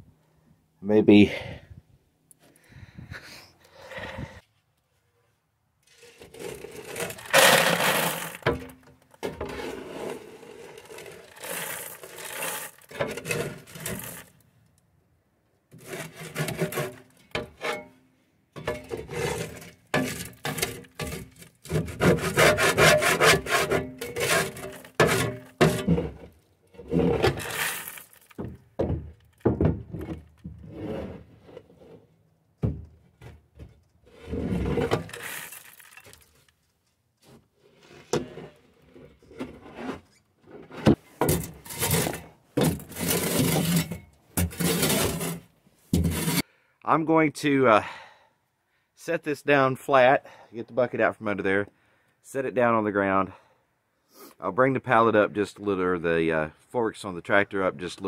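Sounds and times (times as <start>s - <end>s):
shovel scraping metal chute: 5.9s - 8.8s, 9.4s - 14.3s, 15.8s - 18.0s, 18.6s - 28.4s, 34.1s - 36.2s, 40.6s - 46.5s
feed spilling into plastic bucket: 6.1s - 8.7s, 10.8s - 14.3s, 27.0s - 28.4s, 34.5s - 36.2s.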